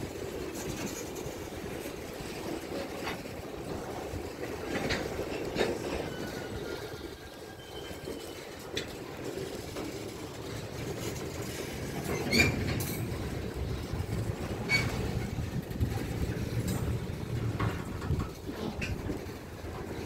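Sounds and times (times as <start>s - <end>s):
train wheels rumbling on rail: 0.0s - 20.0s
metallic squeals: 5.8s - 8.7s.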